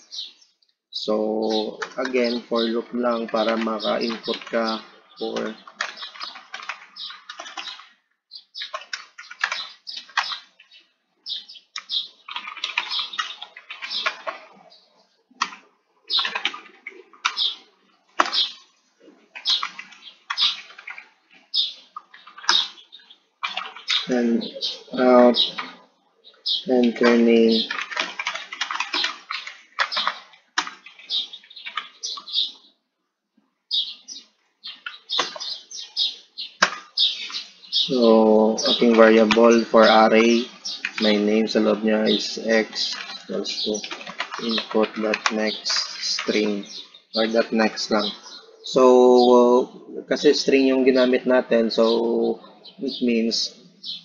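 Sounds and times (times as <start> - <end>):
keyboard typing: 1.4 - 8.0, 8.6 - 10.7, 11.7 - 14.6, 15.4 - 17.6, 19.4 - 22.8, 23.4 - 25.8, 26.6 - 32.4, 36.6 - 48.2.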